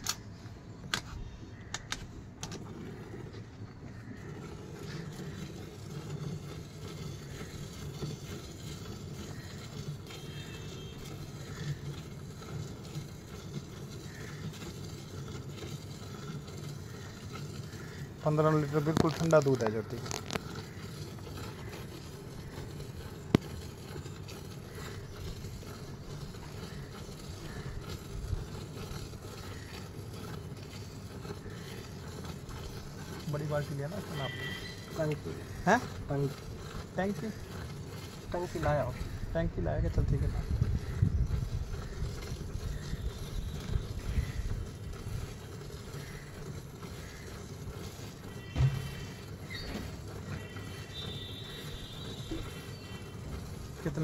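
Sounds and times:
milk squirting into steel bucket: 0:04.0 - 0:39.3, 0:39.9 - 0:54.0
wind rumble on microphone: 0:39.8 - 0:44.7.

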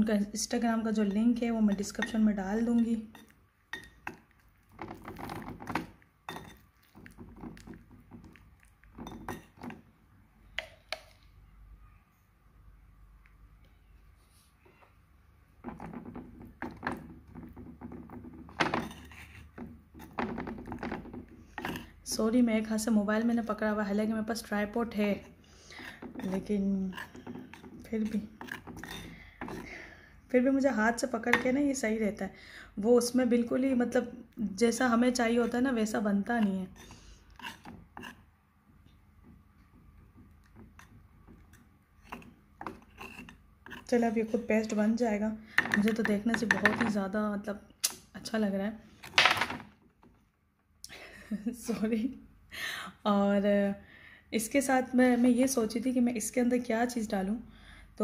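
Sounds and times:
metal spoon scraping clay paste: 0:00.1 - 0:09.8, 0:15.6 - 0:22.4, 0:24.3 - 0:29.8, 0:34.8 - 0:38.3, 0:40.0 - 0:45.2.

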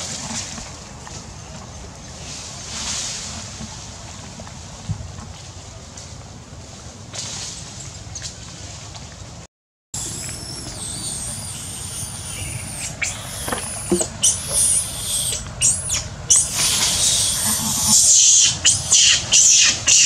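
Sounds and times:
baby monkey screaming: 0:10.0 - 0:20.0.

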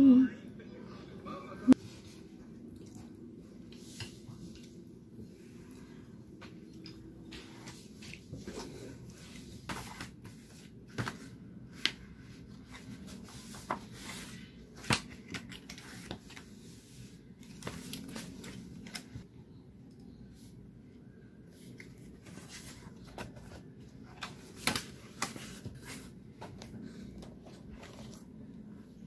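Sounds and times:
paper shuffling: 0:07.3 - 0:19.2.

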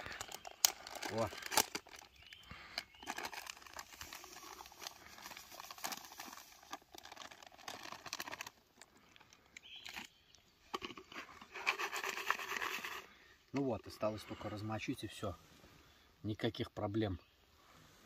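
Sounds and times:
plastic packet crinkling: 0:00.0 - 0:10.1.

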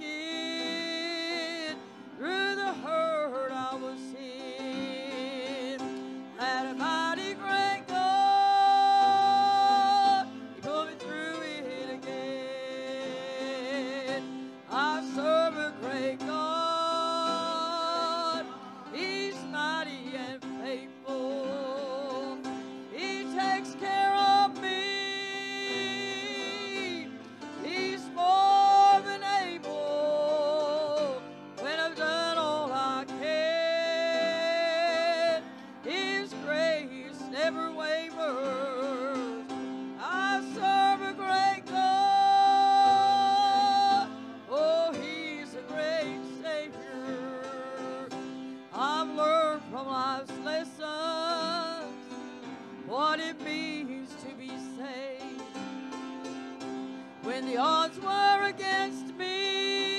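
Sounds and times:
person singing with vibrato: 0:00.0 - 0:55.7, 0:56.8 - 0:59.9
instrumental backing: 0:00.0 - 0:59.9.

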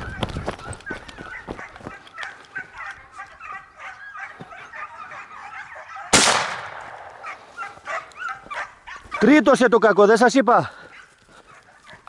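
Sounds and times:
hounds yelping: 0:00.0 - 0:12.0
shotgun shot: 0:06.1 - 0:07.2.

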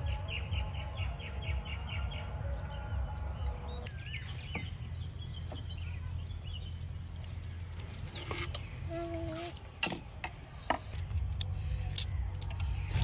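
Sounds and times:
small birds chirping: 0:00.0 - 0:10.2.

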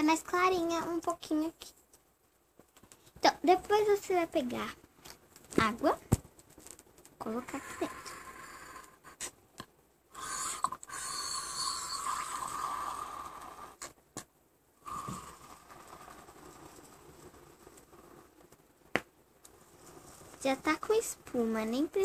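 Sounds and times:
water pouring into bottle: 0:10.2 - 0:13.8.

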